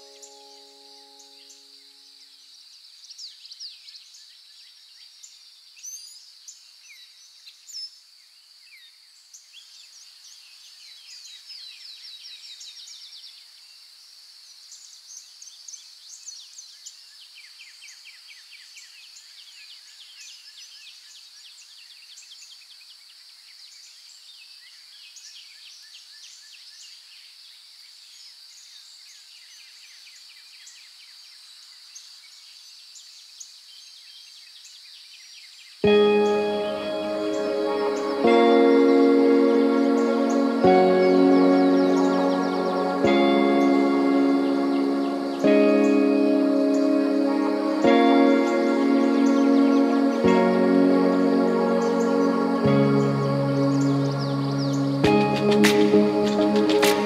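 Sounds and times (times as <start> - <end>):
birds chirping and trilling: 0.0 - 2.5, 35.8 - 57.0.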